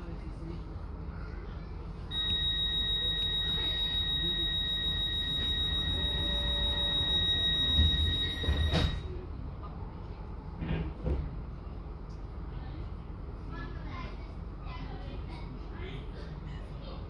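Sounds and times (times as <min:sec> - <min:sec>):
high electronic warning tone: 0:02.1 - 0:09.1
train doors shutting thud: 0:07.6 - 0:09.1.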